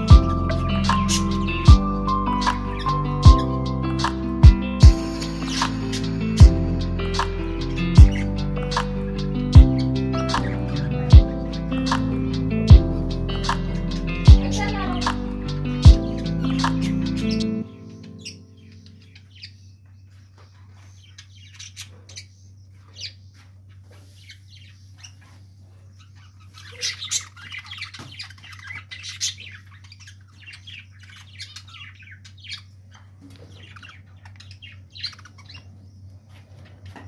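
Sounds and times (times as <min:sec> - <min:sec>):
steady low hum: 0:00.0 - 0:19.6
budgerigars chirping: 0:00.0 - 0:37.0.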